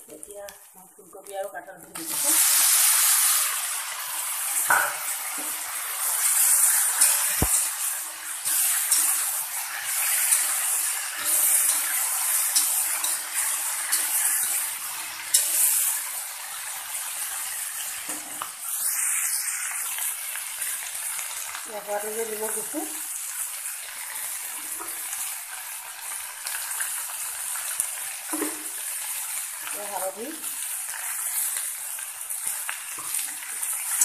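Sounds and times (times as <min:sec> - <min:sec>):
vegetables sizzling in oil: 0:00.0 - 0:34.0
spatula clicking on pan: 0:06.4 - 0:07.8, 0:10.0 - 0:14.6, 0:15.3 - 0:15.9.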